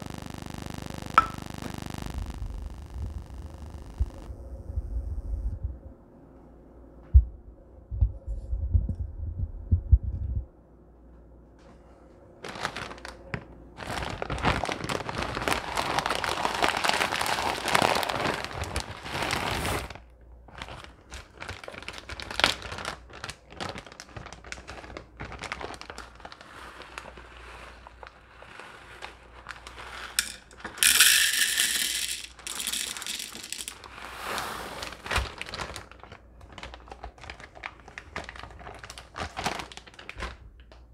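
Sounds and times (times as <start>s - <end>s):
plastic bag rustling: 12.4s - 40.7s
kernels rattling into plastic cup: 29.4s - 34.1s.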